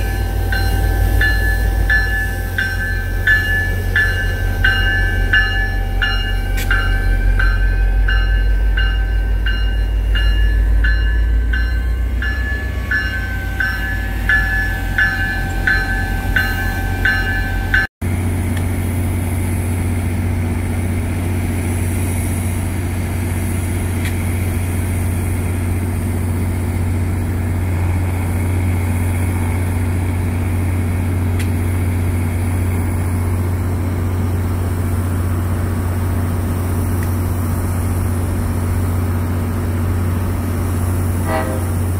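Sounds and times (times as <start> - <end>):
railroad bell ringing: 0.0 - 17.9
diesel locomotive engine drone: 0.0 - 41.9.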